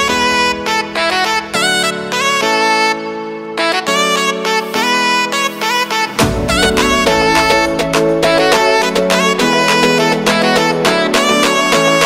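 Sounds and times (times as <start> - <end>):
instrumental music with sliding notes: 0.0 - 12.0
sustained low note: 6.2 - 9.2.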